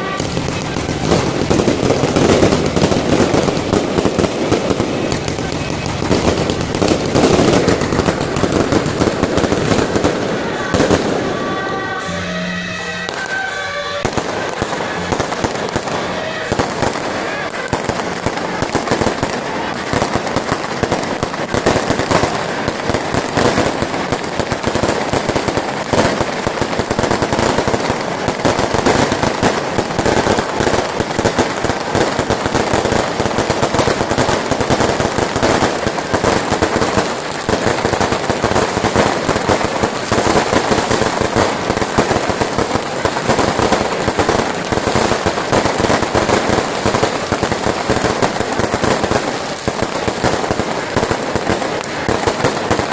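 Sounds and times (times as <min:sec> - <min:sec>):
fireworks crackling and banging: 0:00.0 - 0:52.9.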